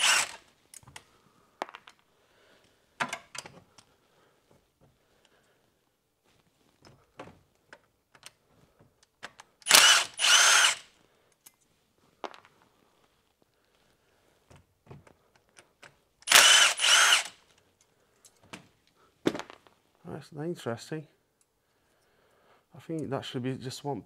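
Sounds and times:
cordless ratchet motor whining: 0:00.0 - 0:00.4, 0:09.6 - 0:10.8, 0:16.2 - 0:17.4
tool handling clicks and knocks: 0:00.0 - 0:02.1, 0:03.0 - 0:03.9, 0:06.7 - 0:09.7, 0:14.5 - 0:19.7.

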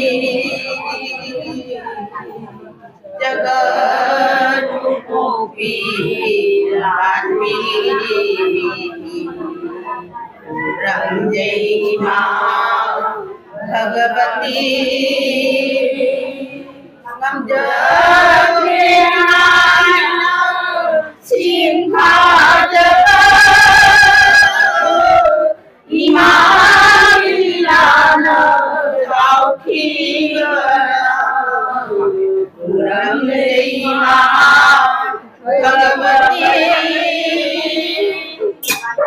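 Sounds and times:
women singing a chant: 0:00.0 - 0:39.0.

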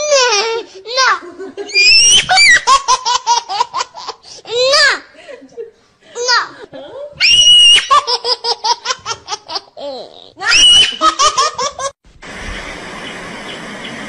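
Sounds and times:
high-pitched squealing laughter: 0:01.6 - 0:03.6, 0:07.2 - 0:12.0
steady outdoor hiss: 0:11.1 - 0:14.0.

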